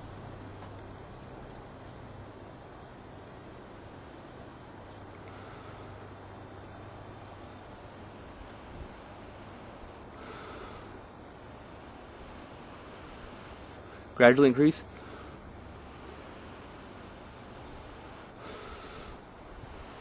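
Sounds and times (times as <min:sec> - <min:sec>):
faint breaths blown into tinder: 0:18.0 - 0:20.0.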